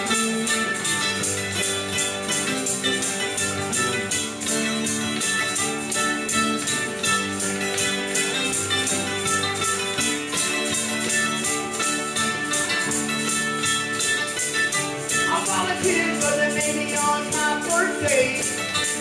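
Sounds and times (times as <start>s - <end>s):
electric guitar: 0.0s - 19.0s
mandolin: 0.0s - 19.0s.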